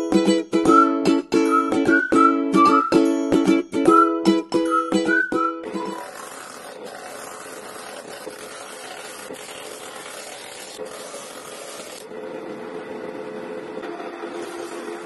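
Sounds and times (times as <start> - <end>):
wood rasping on sanding disc: 5.6 - 12.0, 14.4 - 15.0.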